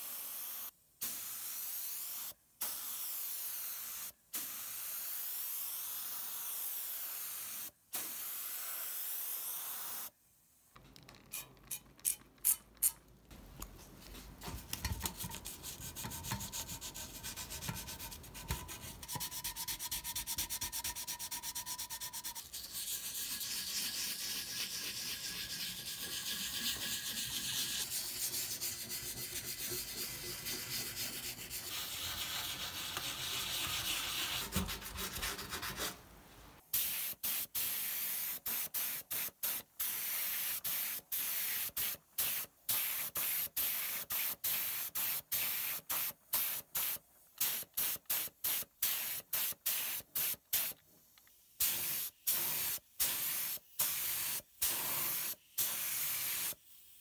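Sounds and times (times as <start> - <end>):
paint gun spraying: 0.0 - 10.1, 36.7 - 50.8, 51.6 - 56.8
sandpaper rubbing metal: 14.1 - 36.0.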